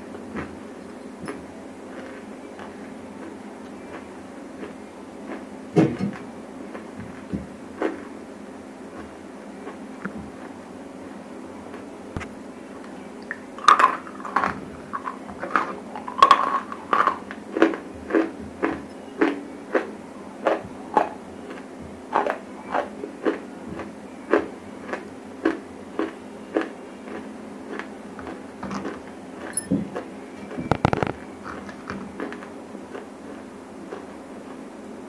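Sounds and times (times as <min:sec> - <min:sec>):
steady low hum: 0:00.0 - 0:35.0
crisp crunching of chewing: 0:01.9 - 0:05.5, 0:13.3 - 0:30.1, 0:30.7 - 0:34.6.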